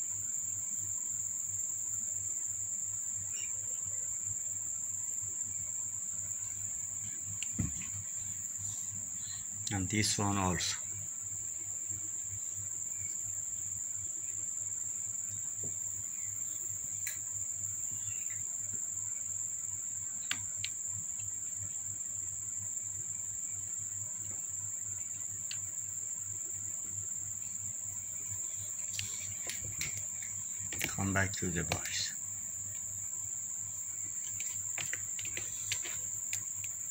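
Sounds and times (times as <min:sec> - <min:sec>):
faint clicks: 0:34.2 - 0:36.8.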